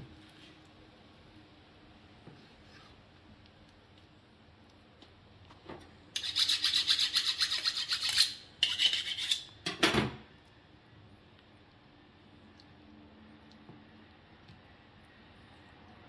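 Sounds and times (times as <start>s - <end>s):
knife blade scraping: 6.2s - 9.6s.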